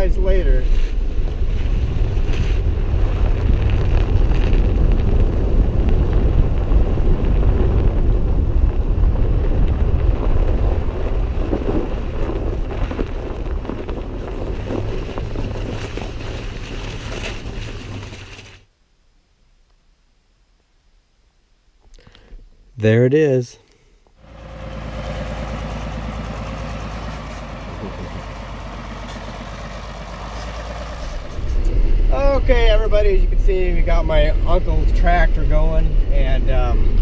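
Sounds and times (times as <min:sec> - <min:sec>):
vehicle engine rumbling: 0:00.0 - 0:18.7, 0:24.0 - 0:37.0
wind buffeting microphone: 0:00.9 - 0:17.0.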